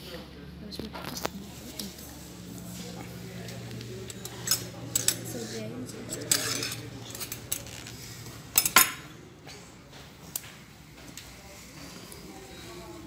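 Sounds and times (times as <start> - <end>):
cutlery clinking on plates: 4.1 - 5.3, 6.1 - 7.8, 8.5 - 9.6.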